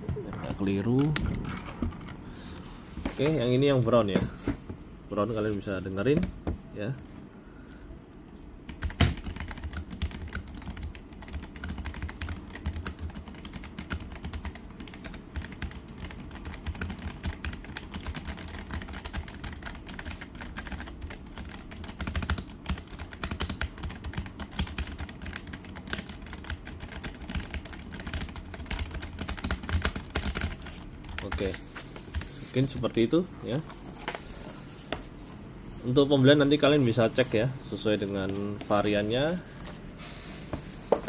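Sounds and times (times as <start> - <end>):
fast typing on mechanical keyboard: 0.1 - 2.2, 8.6 - 32.8.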